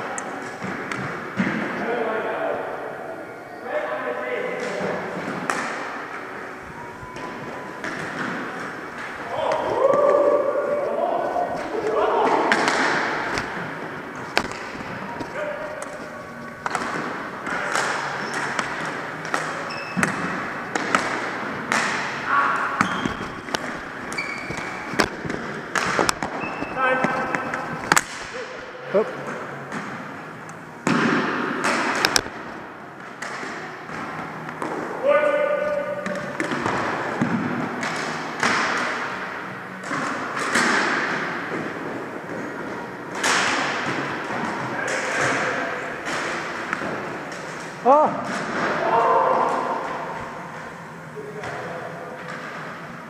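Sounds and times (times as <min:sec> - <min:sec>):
hockey sticks clacking: 0:04.6 - 0:06.4, 0:07.1 - 0:10.9, 0:11.6 - 0:28.5, 0:29.2 - 0:50.8
hockey sticks knocking on gym floor: 0:12.2 - 0:13.6, 0:14.2 - 0:16.0, 0:16.6 - 0:28.3
sneaker squeaks: 0:17.6 - 0:18.6, 0:19.6 - 0:20.4, 0:22.4 - 0:25.3, 0:26.2 - 0:27.6.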